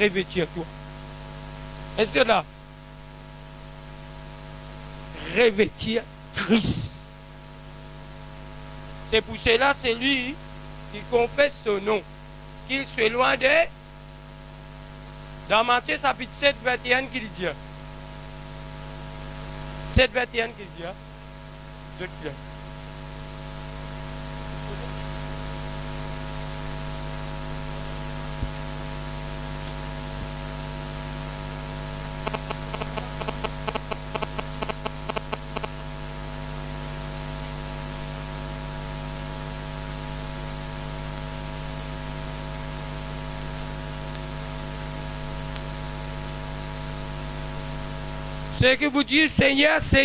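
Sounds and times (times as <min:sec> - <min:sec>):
electrical mains hum: 0:00.0 - 0:50.0
static hiss: 0:03.2 - 0:50.0
crackling clicks: 0:32.2 - 0:35.8, 0:42.7 - 0:44.4, 0:45.5 - 0:45.7.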